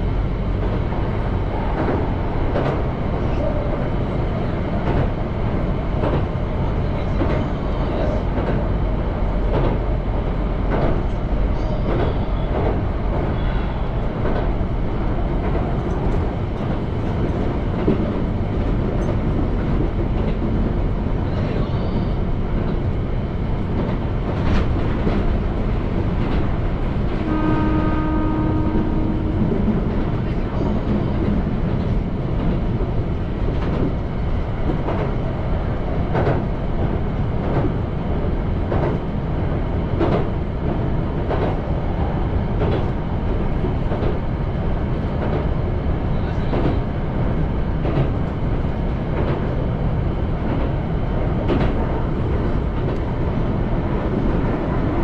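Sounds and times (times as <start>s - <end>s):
oncoming train passing: 0.0s - 55.0s
train rumbling with wheel clacks: 0.0s - 55.0s.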